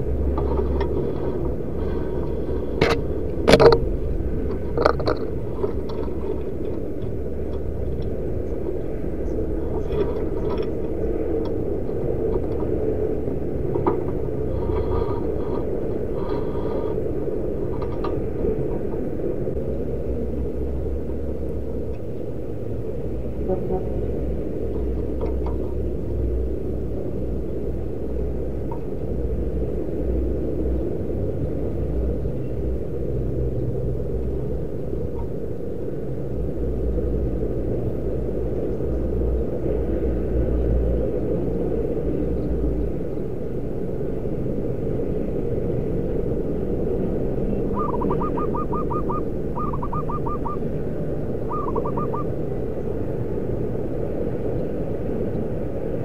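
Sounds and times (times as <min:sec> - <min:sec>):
steady low rumble: 0:00.0 - 0:56.0
dove cooing: 0:47.4 - 0:52.7.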